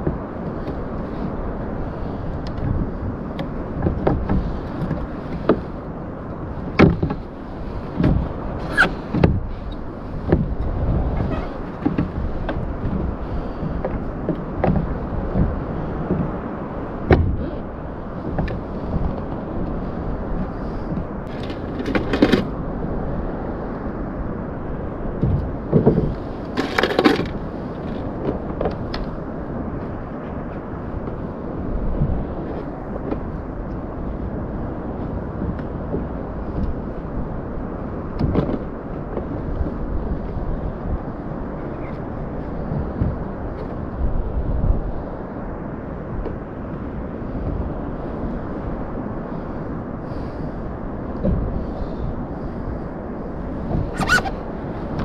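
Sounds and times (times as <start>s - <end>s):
wind and water rushing: 0.0s - 55.0s
knocks against kayak hull: 3.8s - 5.7s, 6.7s - 7.2s, 8.0s - 9.5s, 10.2s - 13.1s, 13.8s - 16.4s, 17.0s - 17.6s, 25.2s - 27.3s.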